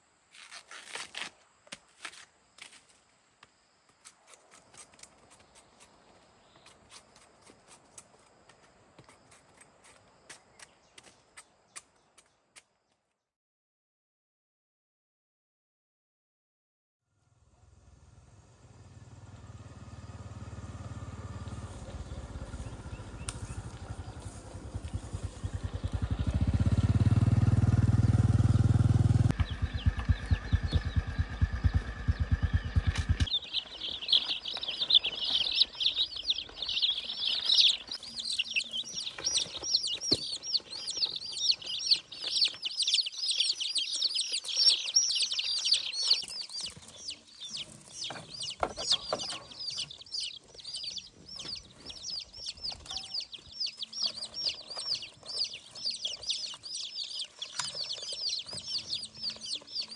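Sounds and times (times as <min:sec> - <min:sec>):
motorcycle engine idling: 0:17.2 - 0:42.6, 0:46.5 - 0:59.9
baby chicks peeping: 0:21.5 - 0:27.2, 0:29.2 - 0:59.9.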